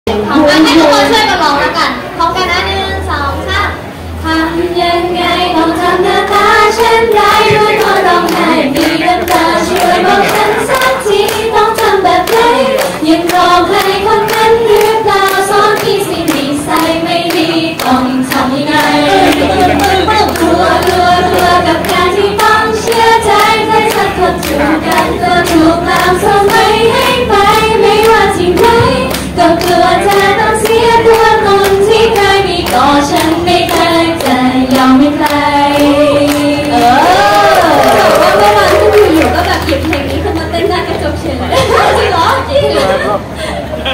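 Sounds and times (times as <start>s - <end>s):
women singing pop song in unison: 4.2s - 43.2s
hands clapping in rhythm: 6.4s - 40.5s.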